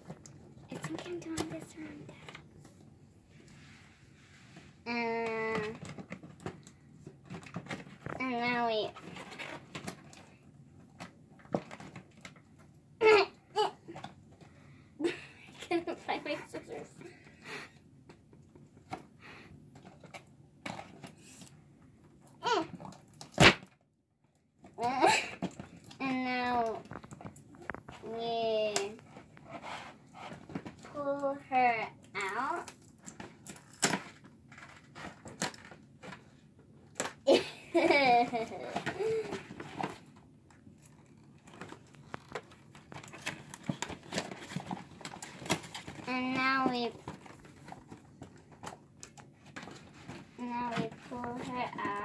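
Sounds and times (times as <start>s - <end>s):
cardboard box rustling and clicking: 38.3s - 51.9s.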